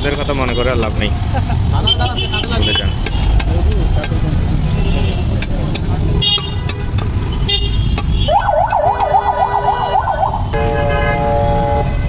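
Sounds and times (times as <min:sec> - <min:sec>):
low rumble of street traffic: 0:00.0 - 0:12.0
warbling electronic siren: 0:08.3 - 0:10.5
steady horn blast: 0:10.5 - 0:12.0.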